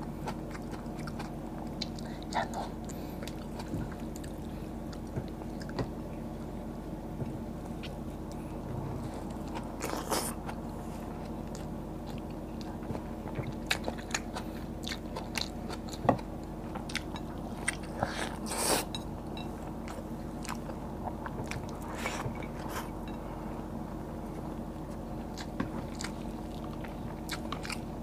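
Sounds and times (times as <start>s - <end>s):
person chewing and biting: 13.4s - 18.9s, 25.3s - 27.9s.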